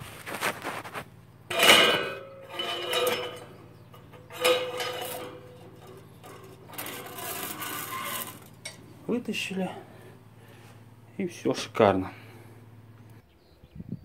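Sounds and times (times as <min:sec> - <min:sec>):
metal clanking and scraping in tubes: 0:00.1 - 0:10.7.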